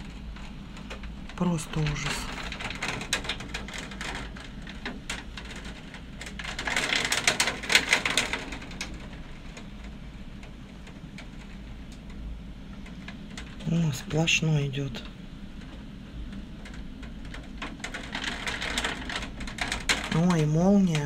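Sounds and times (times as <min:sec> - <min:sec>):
raindrops ticking: 0:00.0 - 0:21.0
heavy rain hissing: 0:01.4 - 0:02.5, 0:13.6 - 0:15.2.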